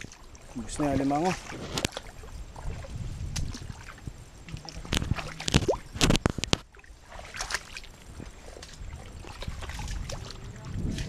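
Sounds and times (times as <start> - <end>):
footsteps squelching through mud: 0.0 - 11.0
sharp wet pops and clicks: 1.4 - 8.0.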